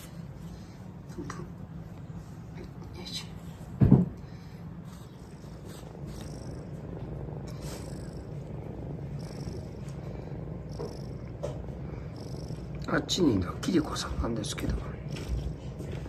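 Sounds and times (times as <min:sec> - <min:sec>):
cat purring: 0:00.0 - 0:16.0
loud thump: 0:03.8 - 0:04.2.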